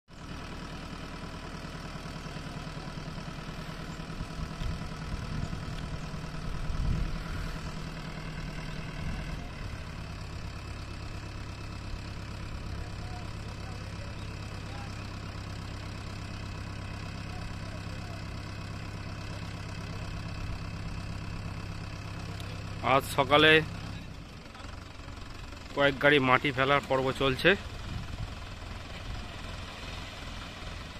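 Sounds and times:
tractor diesel engine running: 0:00.0 - 0:30.9
soil dumping rumble: 0:00.2 - 0:24.2, 0:27.0 - 0:30.9.

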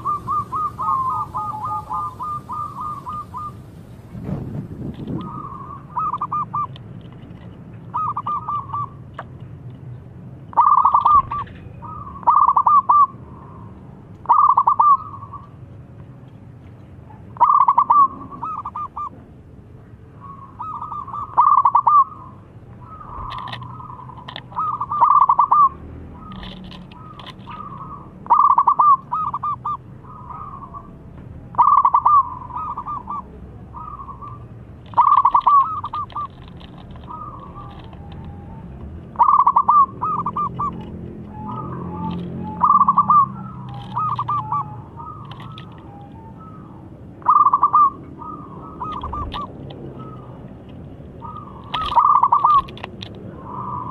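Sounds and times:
dove cooing: 0:00.0 - 0:03.6, 0:05.0 - 0:06.8, 0:07.9 - 0:09.0, 0:10.5 - 0:13.6, 0:14.2 - 0:15.5, 0:17.4 - 0:19.2, 0:20.2 - 0:53.9.

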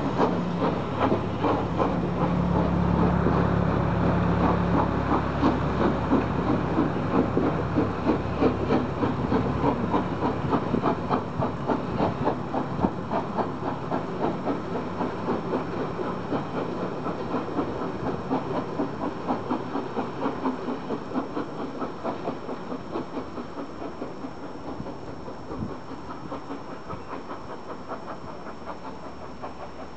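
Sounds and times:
steam train chuffing: 0:00.0 - 0:29.9.

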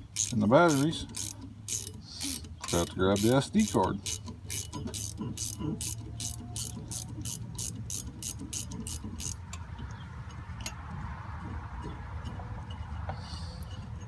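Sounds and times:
ratchet wrench clicking: 0:00.0 - 0:09.6.

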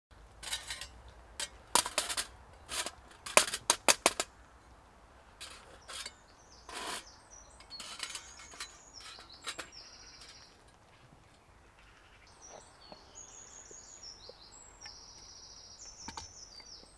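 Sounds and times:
small birds chirping: 0:05.5 - 0:16.9.

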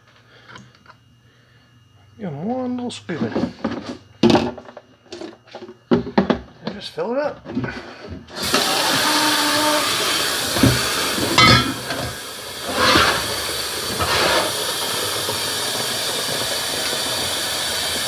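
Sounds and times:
tap water filling jug: 0:08.4 - 0:18.0.

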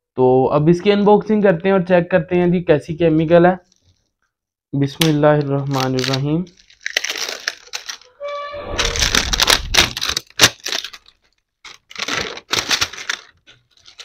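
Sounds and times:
plastic wrapping crinkling: 0:05.4 - 0:14.0.

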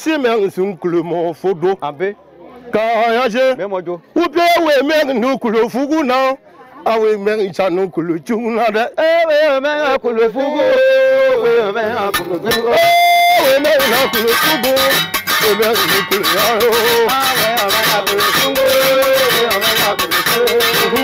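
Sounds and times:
fast plucked instrumental playing: 0:11.8 - 0:21.0
singer holding wavering notes: 0:12.1 - 0:21.0.

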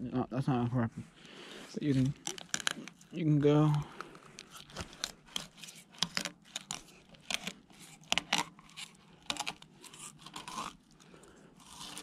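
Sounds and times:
knife scraping against fish bones: 0:05.3 - 0:10.8.

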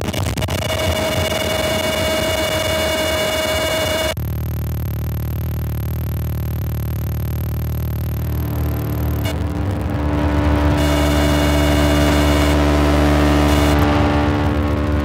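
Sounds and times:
loud electronic static: 0:00.0 - 0:15.0
thin high whine: 0:00.7 - 0:15.0
steady tones: 0:00.9 - 0:15.0
low steady hum: 0:04.2 - 0:15.0.

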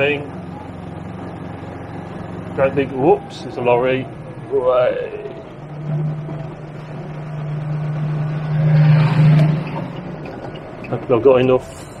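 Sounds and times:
diesel engine humming: 0:00.0 - 0:12.0
wet road noise: 0:00.0 - 0:12.0.

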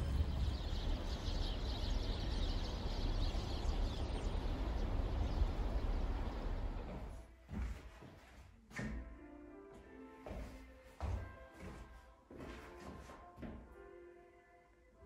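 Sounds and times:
small birds chirping: 0:00.0 - 0:07.2
traffic rumble: 0:00.0 - 0:07.2.

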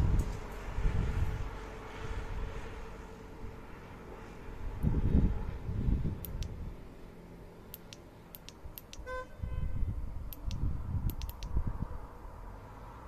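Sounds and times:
wind rumble on microphone: 0:00.0 - 0:06.9, 0:08.6 - 0:13.0
faint sharp clicks: 0:06.2 - 0:06.5, 0:07.7 - 0:09.0, 0:10.3 - 0:11.6
distant car horn: 0:09.0 - 0:09.9.

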